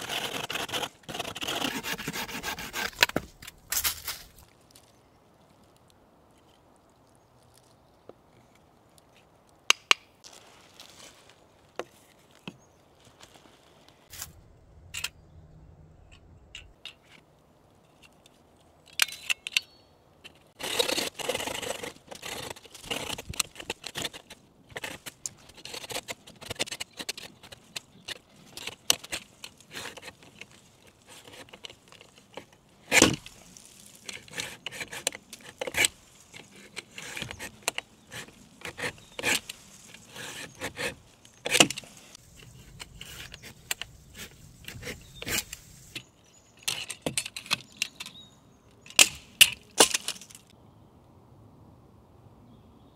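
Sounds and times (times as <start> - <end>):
saw blade scraping through wood: 0.0 - 3.3, 20.6 - 45.7.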